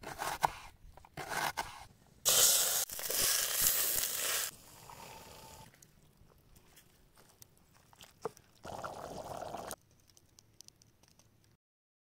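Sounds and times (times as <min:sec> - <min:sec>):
knife cutting onion on wooden board: 0:00.0 - 0:01.9
herbs sizzling in a pot: 0:02.3 - 0:05.2.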